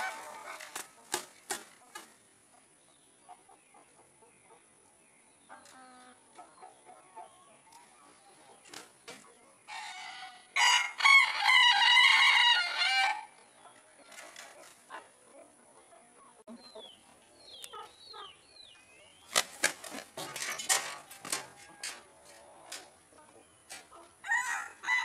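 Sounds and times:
wings flapping: 0.0 - 2.2, 19.3 - 22.0
rooster crowing: 9.7 - 13.3, 24.2 - 25.0.

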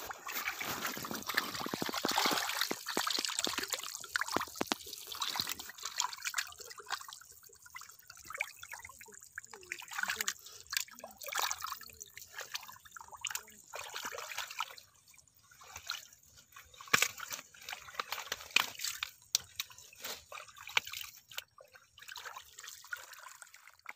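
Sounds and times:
hands sloshing through muddy water: 0.0 - 23.9
water splashes and drips: 0.0 - 23.9.

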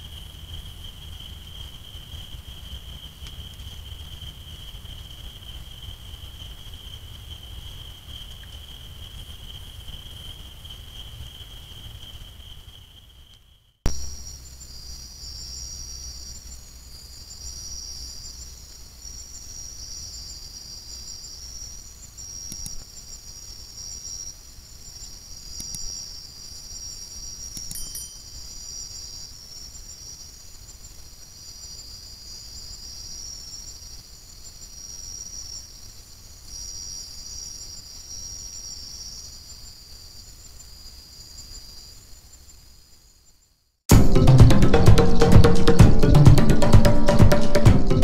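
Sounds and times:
insects trilling: 0.0 - 43.8
faint clicks: 22.4 - 22.9.

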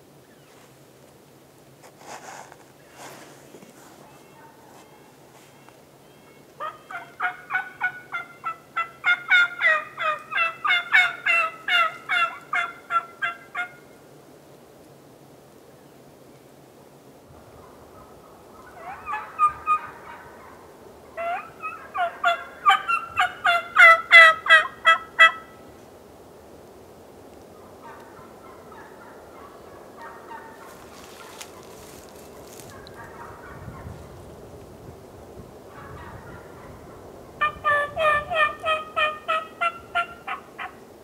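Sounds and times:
turkey yelping: 6.2 - 13.8, 18.6 - 20.6, 21.2 - 25.5, 27.8 - 33.9, 37.4 - 40.8.

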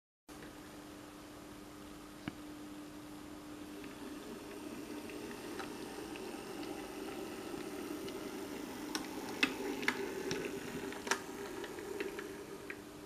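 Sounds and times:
model train motor hum: 3.8 - 12.8.

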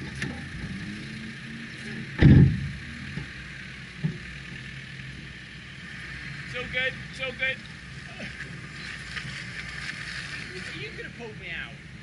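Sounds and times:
car engine idling: 0.0 - 12.0
loud thump: 2.2 - 2.8.

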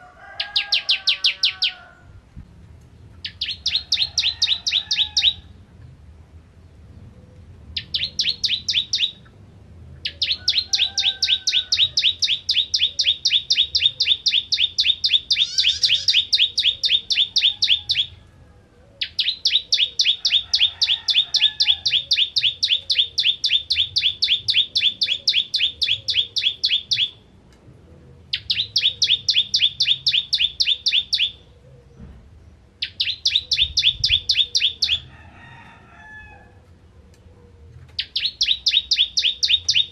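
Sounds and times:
bird singing rapid sharp notes: 7.8 - 9.3, 10.1 - 18.2, 19.0 - 27.2, 28.4 - 31.4, 32.8 - 35.0, 38.0 - 39.9
faint bird chirps: 10.1 - 18.2.

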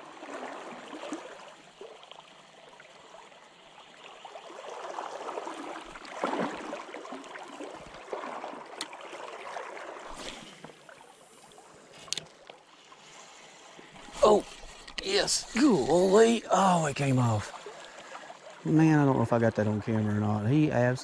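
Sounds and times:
river water gurgling and splashing: 0.0 - 20.9.

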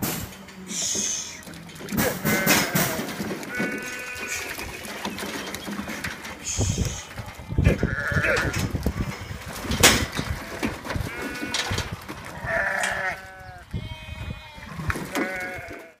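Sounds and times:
sheep and lambs bleating: 1.2 - 5.2, 6.9 - 9.4, 10.2 - 16.0.

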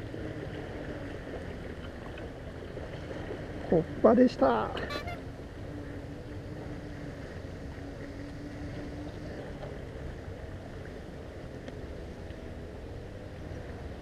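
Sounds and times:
distant motor hum: 0.0 - 14.0.

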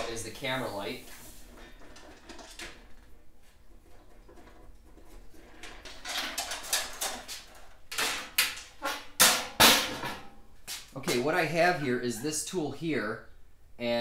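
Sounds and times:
sheet metal rattling and scraping: 0.0 - 10.4.

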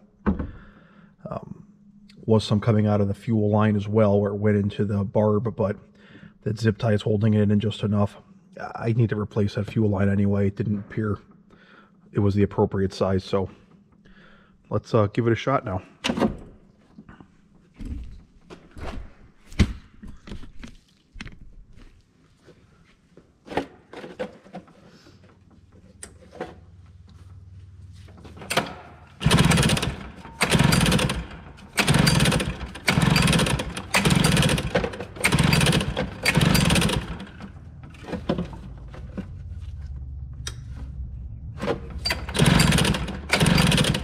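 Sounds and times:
engine pull-start cranking: 28.4 - 39.4, 41.6 - 44.0.

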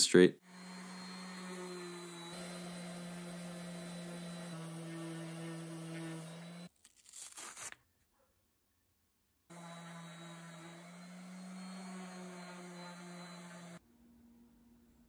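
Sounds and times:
orbital sander running: 0.4 - 6.7, 9.5 - 13.8.

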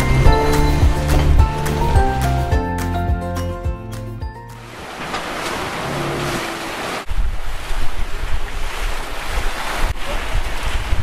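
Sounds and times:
sea water rushing along hull: 0.0 - 3.2, 4.4 - 11.0
low wind rumble: 4.6 - 11.0
wind buffeting microphone: 7.0 - 11.0.

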